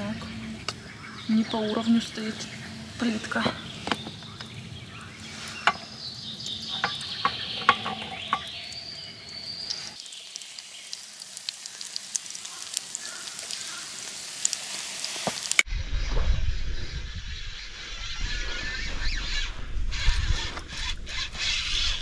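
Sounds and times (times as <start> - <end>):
batter sizzling in frying pan: 5.0 - 15.7
crackling pops: 9.6 - 15.7.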